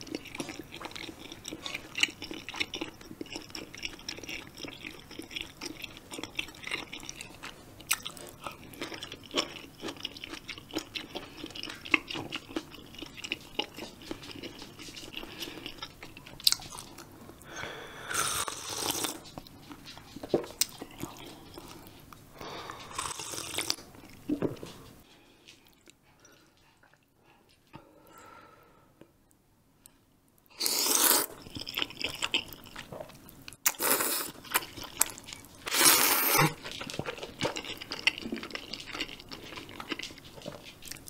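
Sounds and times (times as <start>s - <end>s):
chewing crunchy food: 0.0s - 27.8s, 30.6s - 41.0s
person drinking broth: 35.7s - 36.6s.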